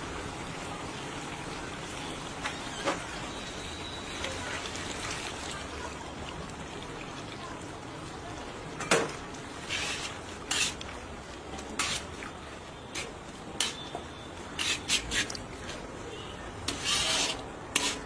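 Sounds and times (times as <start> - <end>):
metal spatula scraping wok: 9.6 - 10.9, 11.7 - 12.2, 12.9 - 13.9, 14.5 - 15.4, 16.6 - 18.0.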